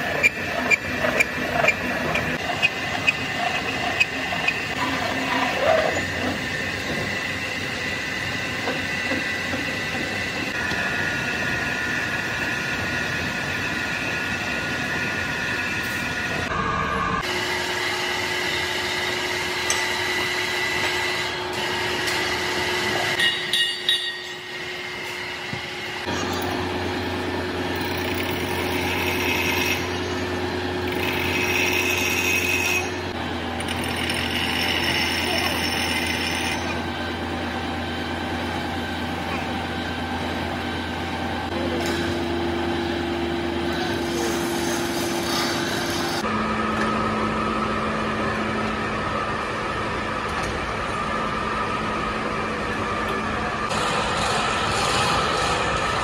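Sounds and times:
lathe cutting tool ringing: 0:18.2 - 0:25.1, 0:27.8 - 0:30.3, 0:30.9 - 0:36.9
machine running hum: 0:23.9 - 0:56.0.

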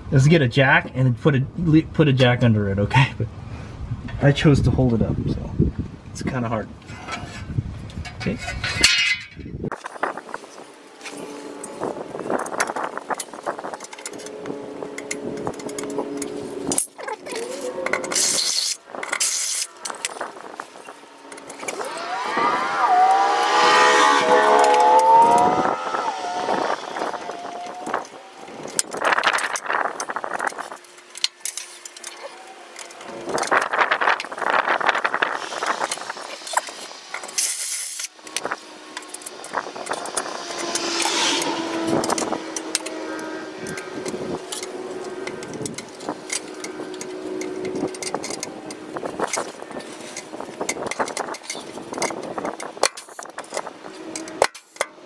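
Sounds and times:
metal shield clicking and clinking: 0:08.0 - 0:09.5
engine running: 0:08.0 - 0:55.0.

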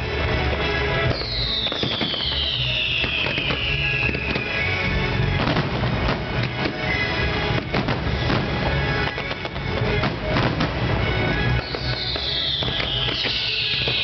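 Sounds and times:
fireworks popping and banging: 0:00.0 - 0:14.0
music: 0:00.0 - 0:14.0
firework whistle sliding down: 0:01.1 - 0:04.9, 0:11.6 - 0:14.0.

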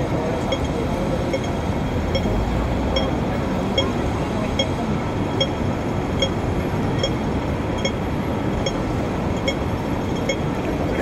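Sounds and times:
city street traffic hum: 0:00.0 - 0:11.0
pedestrian crossing signal beeping: 0:00.4 - 0:11.0.

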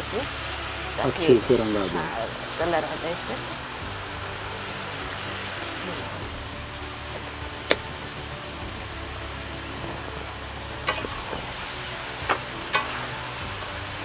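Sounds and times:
meat sizzling in a pan: 0:00.0 - 0:14.0.

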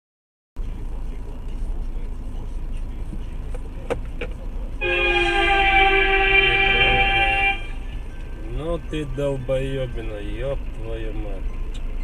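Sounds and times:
traffic rumble: 0:00.6 - 0:12.0
car horn blast: 0:04.8 - 0:07.9.

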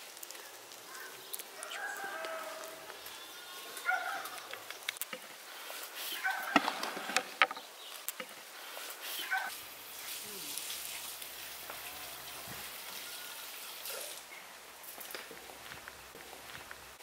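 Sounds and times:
sharp clicks: 0:04.3 - 0:05.2.

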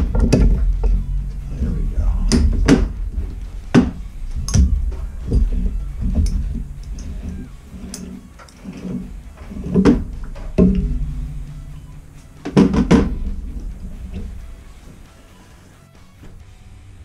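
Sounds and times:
sharp metal knocks and clicks: 0:00.0 - 0:01.4
steady low rumble: 0:00.0 - 0:17.0.

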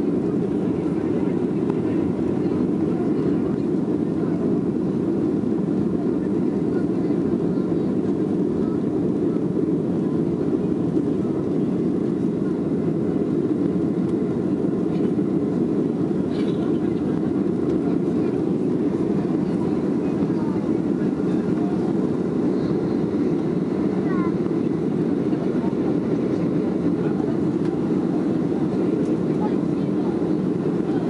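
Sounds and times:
airflow over fuselage: 0:00.0 - 0:31.0
airplane cabin engine noise: 0:00.0 - 0:31.0.

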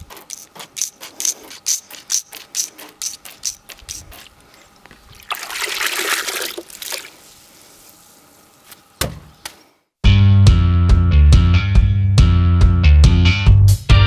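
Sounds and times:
water running and trickling: 0:05.1 - 0:07.2
rock music with guitar: 0:10.1 - 0:14.0.

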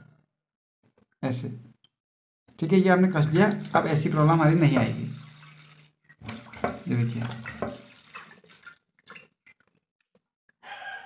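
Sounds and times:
water trickling in toilet cistern: 0:03.1 - 0:09.8.

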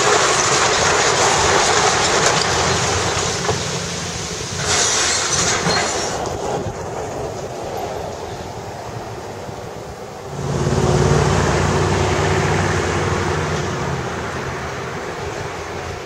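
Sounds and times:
wide rushing noise: 0:00.0 - 0:16.0
engine low hum: 0:10.3 - 0:16.0.

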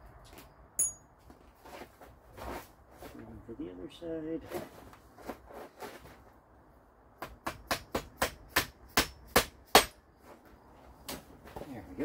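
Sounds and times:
hammer striking steel: 0:00.8 - 0:01.0.

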